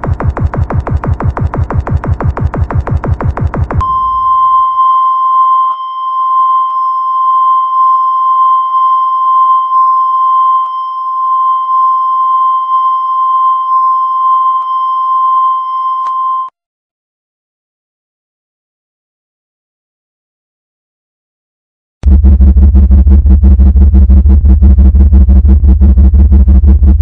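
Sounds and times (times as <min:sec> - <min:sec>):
steady electronic beep tone: 0:03.0 - 0:16.5.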